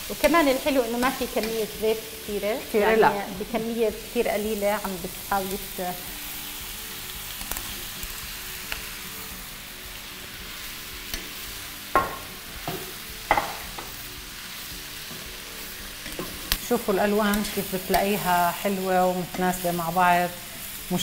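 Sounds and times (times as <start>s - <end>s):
vegetables sizzling in a wok: 0.0s - 21.0s
wooden spoon knocking pan: 12.0s - 13.9s.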